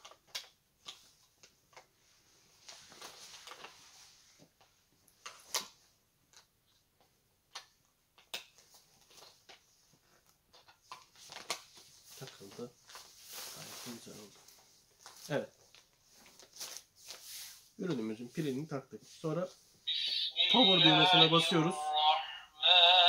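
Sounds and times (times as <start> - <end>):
fabric rustling: 11.2 - 20.3.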